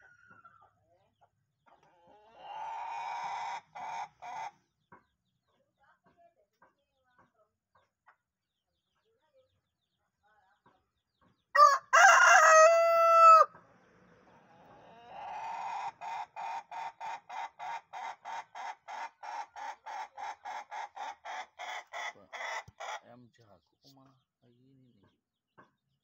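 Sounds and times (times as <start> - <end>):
rooster crowing: 11.6 - 13.5.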